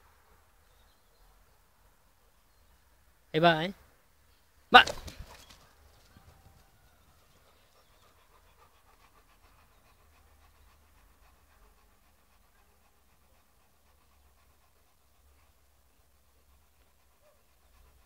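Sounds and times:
dog panting: 7.2s - 18.0s.

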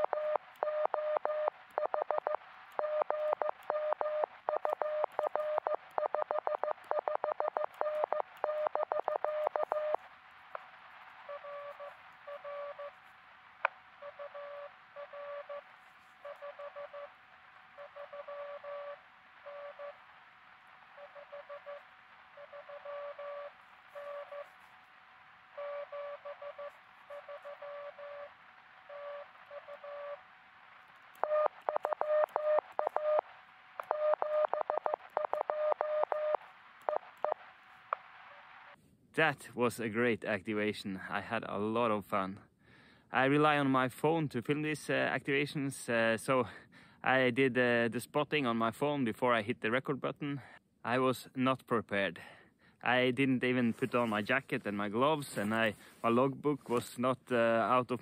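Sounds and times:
loud morse code sidetone: 0.0s - 10.0s, 14.0s - 17.2s, 17.8s - 20.0s, 21.0s - 24.6s, 25.6s - 28.3s
faint morse signal: 0.0s - 10.2s, 11.2s - 13.1s, 14.0s - 20.2s, 20.8s - 24.7s, 25.5s - 30.3s, 31.2s - 37.4s
receiver hiss: 0.0s - 39.7s, 52.2s - 58.0s.

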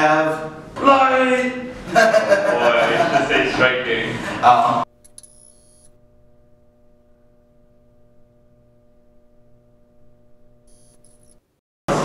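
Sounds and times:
faint electronic hum: 4.4s - 11.6s.

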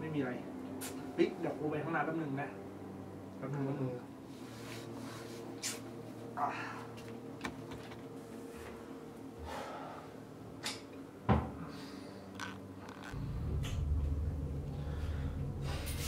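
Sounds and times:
steady low hum: 8.0s - 16.0s.

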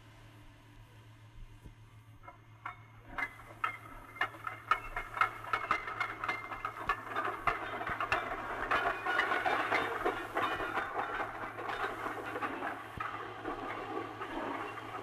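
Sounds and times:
rattling and clanking: 2.2s - 15.0s
train wagons rolling past: 2.2s - 15.0s
wheels clicking over rail joints: 2.2s - 15.0s.

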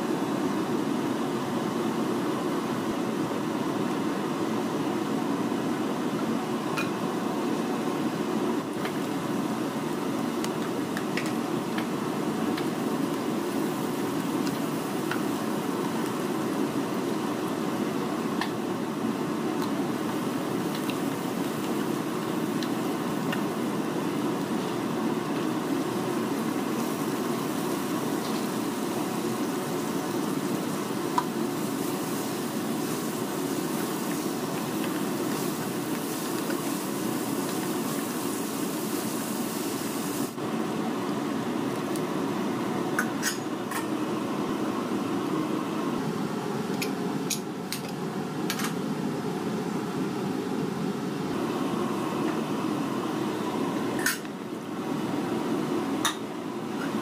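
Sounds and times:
food sizzling: 8.6s - 40.4s
spatula stirring in a pan: 25.4s - 39.4s.

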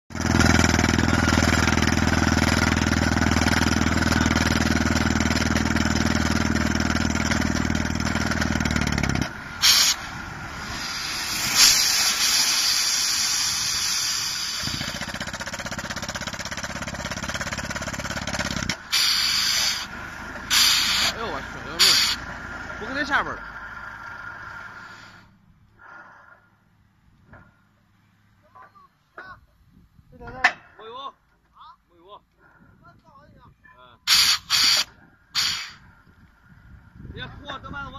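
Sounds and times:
drilling rig hammering: 0.1s - 23.1s, 34.1s - 35.8s
compressed air hissing blasts: 9.4s - 15.1s, 18.9s - 21.2s, 34.1s - 35.8s.

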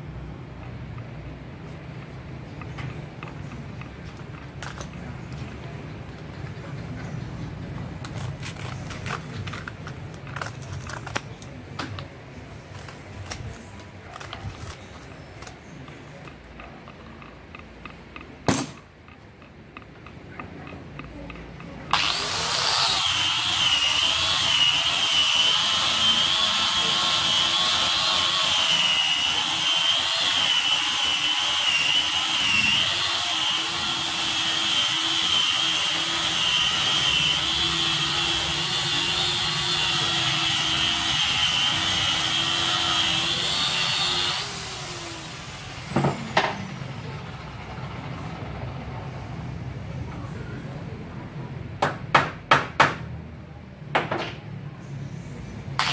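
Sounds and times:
electric sander whining: 21.9s - 47.4s.

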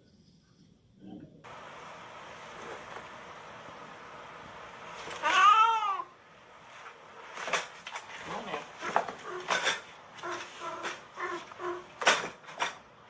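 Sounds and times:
cat yowling: 5.2s - 6.1s.

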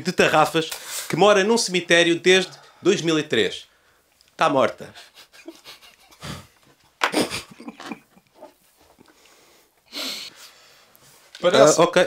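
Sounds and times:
stifled laughter: 5.0s - 8.6s
hissing exhale: 9.2s - 10.9s.

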